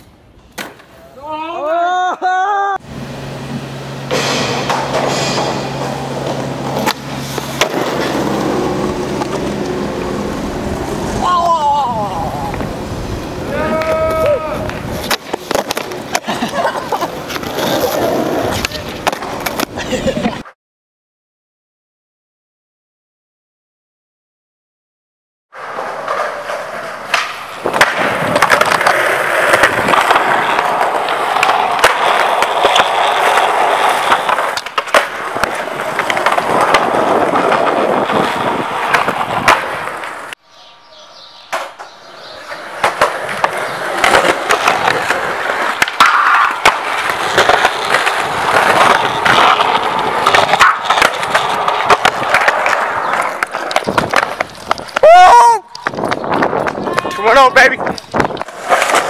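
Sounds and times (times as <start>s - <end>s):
skateboard wheels rolling on concrete: 0.0s - 20.6s, 25.5s - 59.0s
skateboard clacks: 4.1s - 10.3s, 13.5s - 20.4s, 25.6s - 40.4s, 41.5s - 59.0s.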